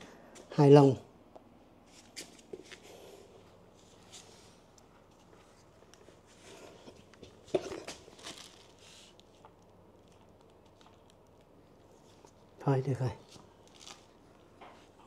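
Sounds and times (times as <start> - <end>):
rustling and crinkling of gear: 3.6 - 15.0.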